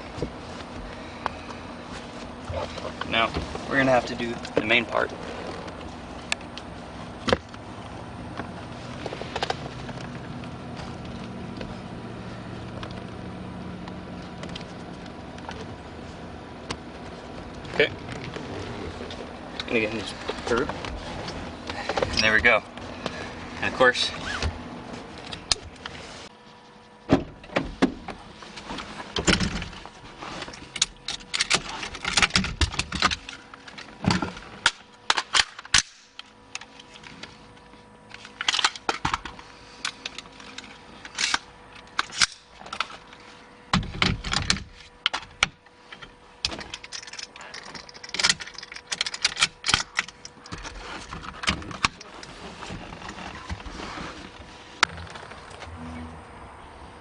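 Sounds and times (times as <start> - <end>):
rifle handling clicks and rattles: 38.1 - 43.2, 46.0 - 52.2.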